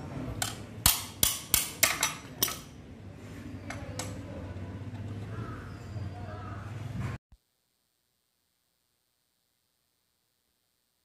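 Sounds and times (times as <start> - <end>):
metal tool clinking on metal: 0.4 - 2.8.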